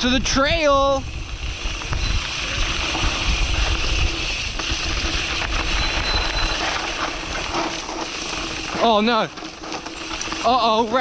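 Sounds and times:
wind rumble on microphone: 0.0 - 8.6
bike rattling: 0.0 - 11.0
tyres on dirt and stones: 1.1 - 11.0.

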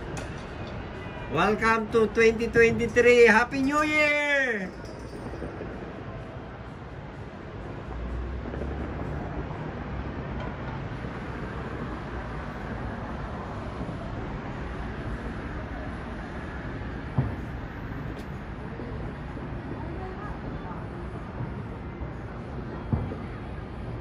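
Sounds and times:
traffic noise: 0.0 - 24.0
distant fireworks booming: 16.8 - 18.5, 22.5 - 24.0.

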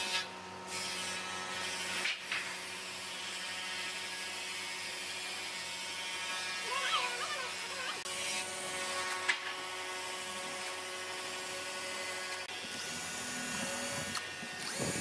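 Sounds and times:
cordless drill boring into wood: 9.8 - 15.0.

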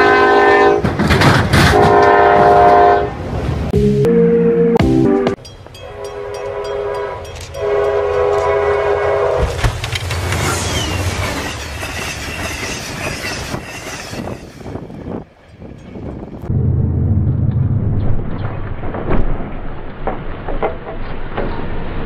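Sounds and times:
train horn blasts: 0.0 - 0.9, 1.7 - 3.2, 5.8 - 9.6
rumbling train wheels: 0.4 - 3.7, 5.6 - 22.0
train rushing past: 5.6 - 19.6.

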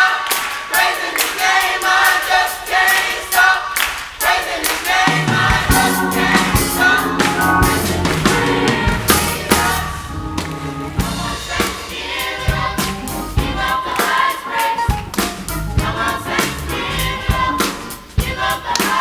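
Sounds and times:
youth choir singing gospel: 0.0 - 19.0
band accompaniment: 1.5 - 19.0
drum hits: 4.9 - 14.2.

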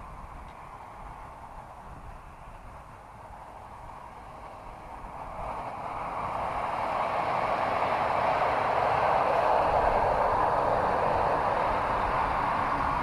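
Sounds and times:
model plane rushing: 3.7 - 13.0.

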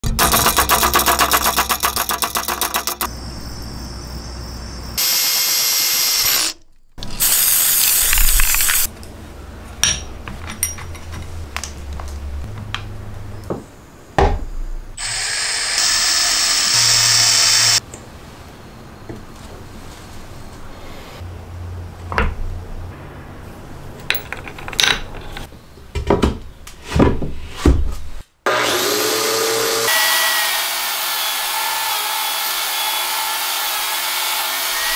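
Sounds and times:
tool parts clicking and knocking: 0.0 - 3.1, 9.8 - 11.8, 24.0 - 26.4
drill driving screws: 5.0 - 6.6, 15.0 - 17.8
power tools running: 5.0 - 8.9, 15.0 - 17.8, 28.5 - 34.9.

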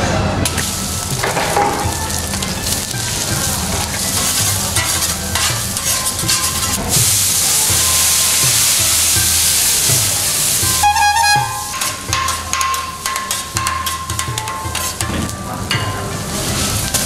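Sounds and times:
egg sizzling on griddle: 0.5 - 17.0
metal spatulas scraping: 3.6 - 6.9, 10.8 - 15.3.

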